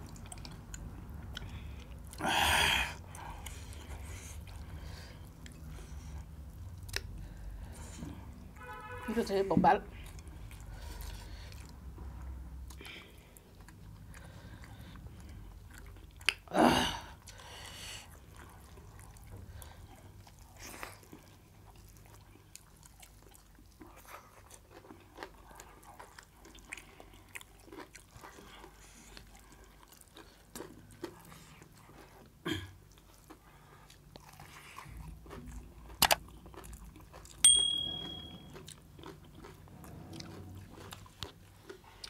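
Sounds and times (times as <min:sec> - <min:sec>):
people chewing and eating: 0:00.0 - 0:08.9, 0:09.8 - 0:42.0
wet mouth clicks and smacks: 0:16.2 - 0:16.4, 0:36.0 - 0:36.3.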